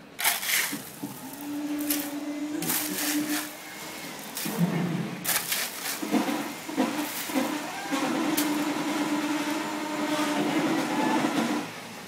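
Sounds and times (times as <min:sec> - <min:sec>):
shovel scooping gravel: 0:00.2 - 0:03.6, 0:05.2 - 0:07.6.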